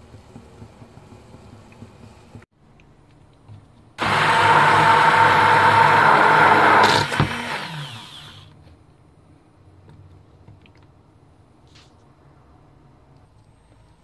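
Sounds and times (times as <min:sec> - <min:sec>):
blender knock: 0:04.0 - 0:08.5
immersion blender whirring: 0:04.0 - 0:08.6.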